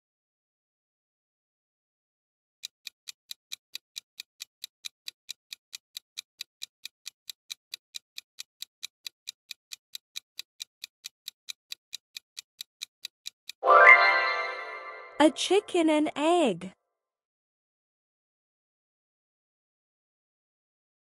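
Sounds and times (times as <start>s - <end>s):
clock ticking: 2.6s - 13.6s.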